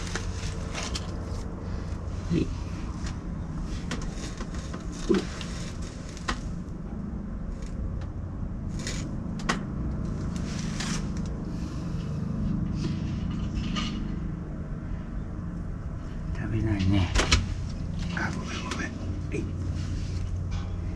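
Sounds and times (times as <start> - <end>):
short rustles: 0.0 - 6.7
low background hum: 0.0 - 20.9.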